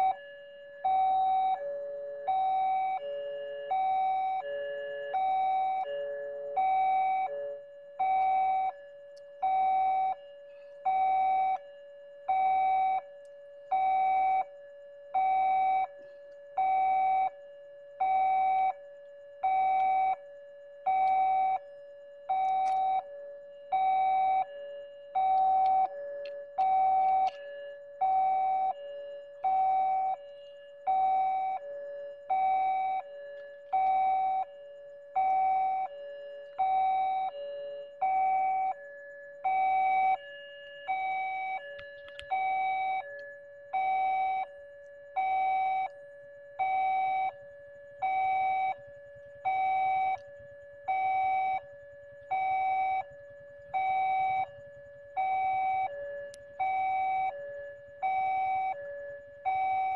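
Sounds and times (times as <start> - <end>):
level-crossing warning bell: 0.0 - 12.0, 22.3 - 44.6.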